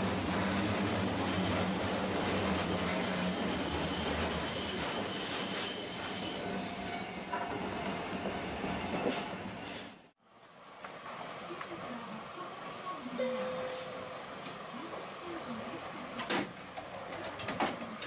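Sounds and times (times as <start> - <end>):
tram wheels squealing: 0.0 - 9.9
tram rumbling on rails: 0.0 - 18.0.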